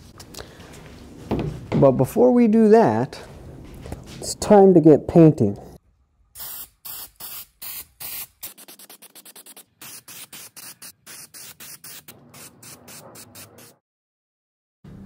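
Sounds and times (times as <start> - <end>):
spray paint can hissing: 6.4 - 13.8.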